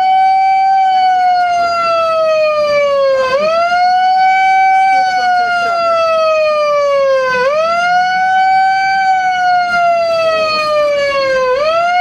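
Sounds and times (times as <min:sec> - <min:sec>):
megaphone siren wailing: 0:00.0 - 0:12.0.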